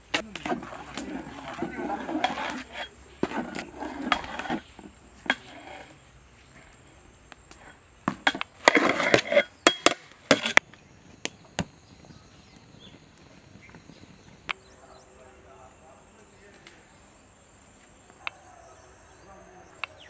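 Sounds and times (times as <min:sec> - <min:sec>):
metal ladle scraping a pot: 0:00.3 - 0:06.0, 0:08.3 - 0:10.6.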